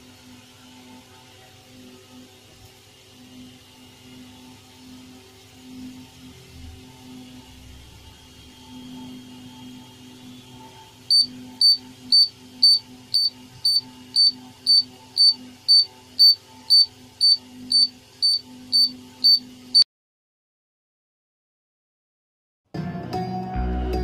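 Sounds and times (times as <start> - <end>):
buzzer beeping in short pulses: 11.1 - 19.8.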